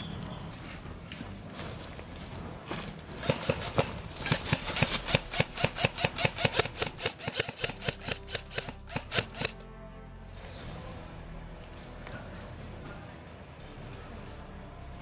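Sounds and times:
airsoft rifle shots: 3.2 - 9.6.

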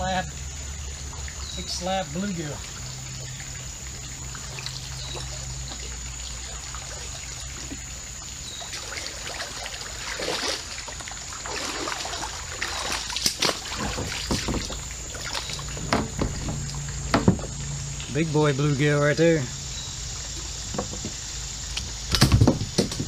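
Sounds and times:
fish splashing in water: 0.0 - 18.2
creek water trickling: 0.0 - 23.0.

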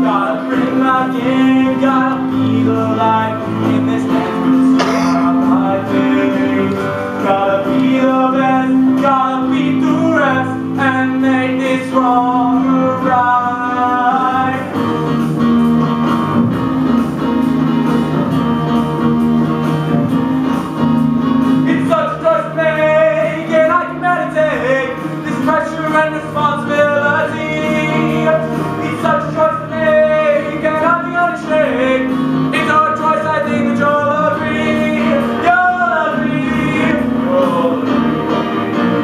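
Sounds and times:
person singing: 0.0 - 14.8
instrumental accompaniment with guitar: 0.0 - 39.0.

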